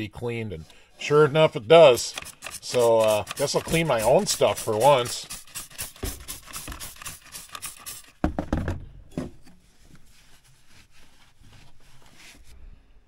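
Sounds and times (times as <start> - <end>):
rag wiping metal: 1.0 - 8.2
spray bottle squirting: 1.9 - 8.2.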